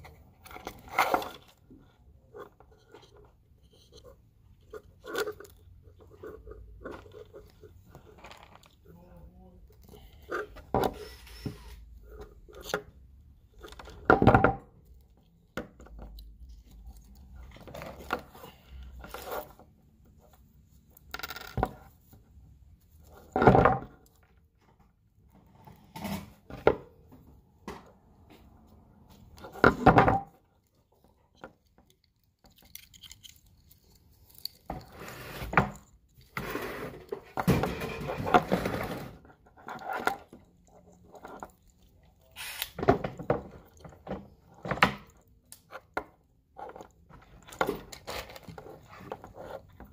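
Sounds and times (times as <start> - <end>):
wires and plastic connectors rustling: 0.0 - 21.1, 27.9 - 49.9.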